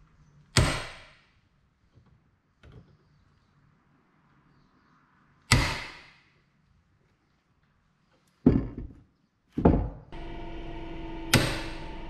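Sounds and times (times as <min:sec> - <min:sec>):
hammer striking metal: 0:11.2 - 0:12.0.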